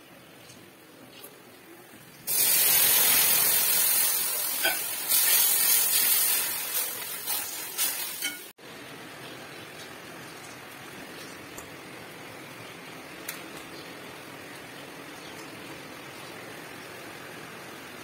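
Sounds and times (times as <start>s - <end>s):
oil sizzling in a pan: 2.3s - 8.6s.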